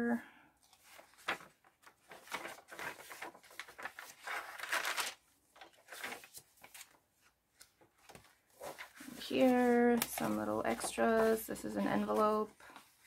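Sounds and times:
paper pages rustling: 0:00.6 - 0:13.0.

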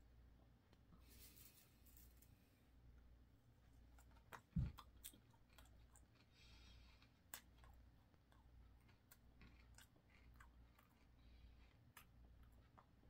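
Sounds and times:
low steady hum: 0:00.0 - 0:13.0
chewing crunchy cereal: 0:03.6 - 0:13.0.

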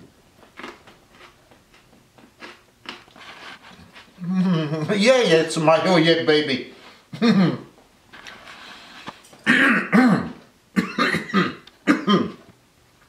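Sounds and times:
man clearing his throat: 0:07.1 - 0:07.7, 0:09.4 - 0:12.4
man coughing: 0:07.2 - 0:07.7, 0:09.4 - 0:12.4.

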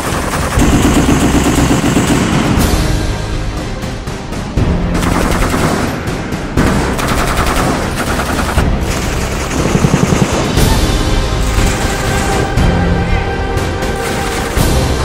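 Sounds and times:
machine gun automatic fire: 0:00.0 - 0:02.6, 0:05.0 - 0:06.0, 0:06.6 - 0:10.8, 0:11.4 - 0:12.4.

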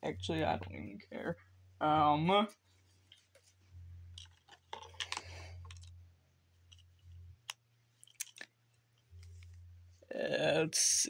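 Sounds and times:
headset cable rustling: 0:02.6 - 0:10.0.

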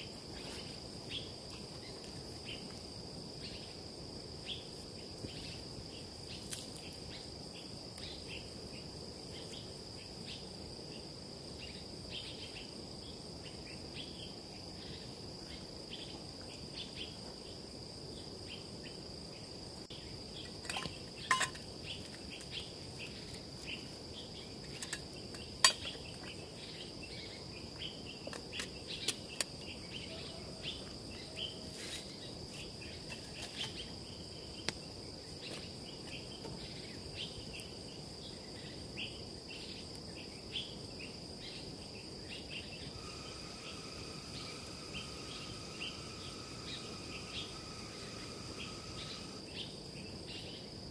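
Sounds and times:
insects chirring: 0:00.0 - 0:50.9.

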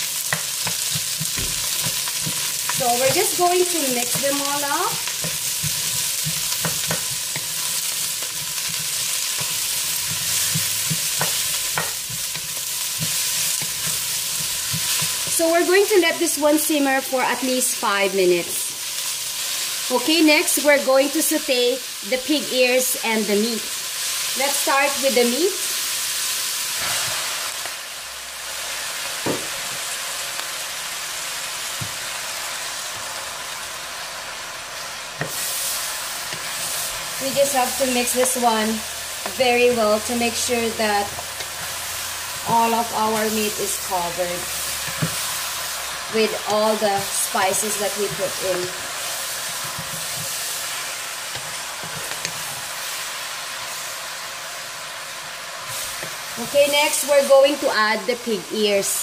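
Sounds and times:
vegetables sizzling in oil: 0:00.0 - 0:59.0
wooden spoon stirring: 0:00.3 - 0:15.3, 0:44.6 - 0:52.8.

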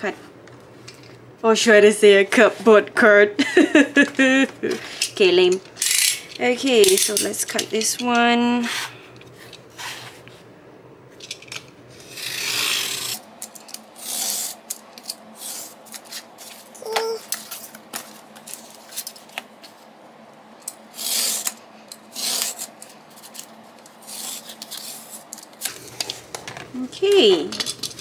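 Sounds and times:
knife scraping through cardboard: 0:22.1 - 0:23.4.

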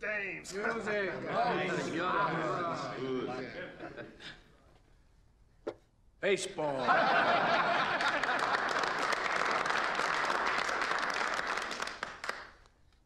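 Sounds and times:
voices: 0:00.0 - 0:04.5
men applauding: 0:07.8 - 0:12.7.

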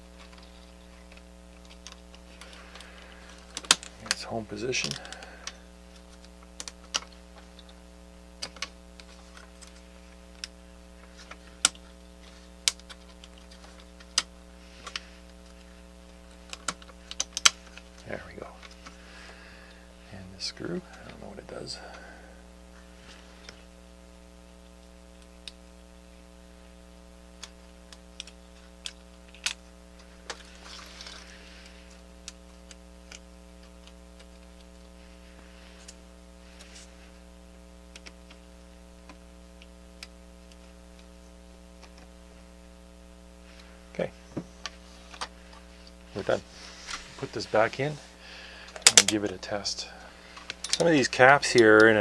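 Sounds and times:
low electrical hum: 0:00.0 - 0:52.0
plastic parts clicking: 0:48.7 - 0:49.2, 0:50.4 - 0:51.9.

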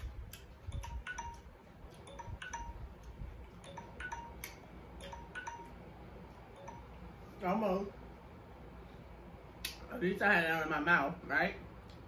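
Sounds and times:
tinkling chime notes: 0:02.1 - 0:02.9, 0:03.6 - 0:05.8.

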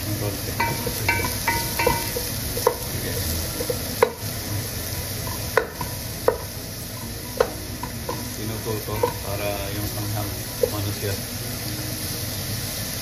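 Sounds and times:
vegetables sizzling in oil: 0:00.0 - 0:13.0
spoon knocking against pot: 0:00.6 - 0:02.8.

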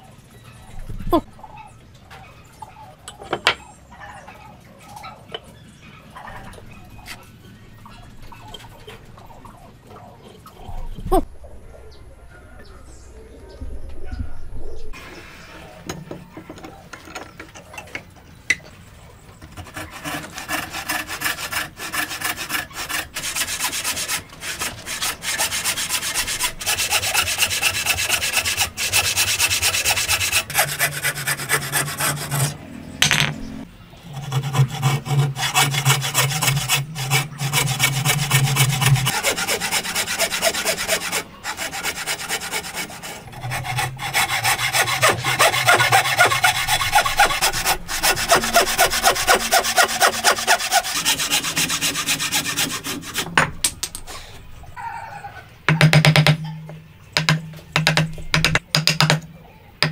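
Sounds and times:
hand tool rasping wood: 0:19.4 - 0:32.6, 0:34.1 - 0:53.3.

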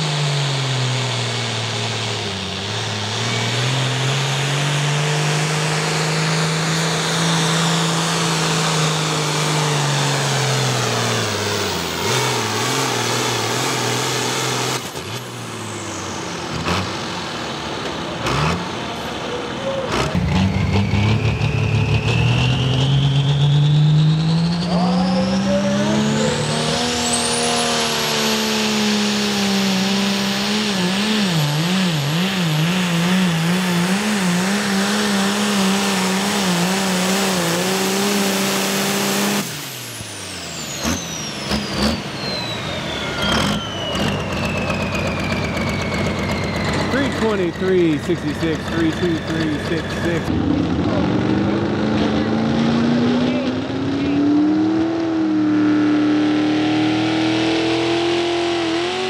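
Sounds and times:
tractor diesel engines under load: 0:00.0 - 0:59.0
high whine climbing: 0:18.9 - 0:59.0.

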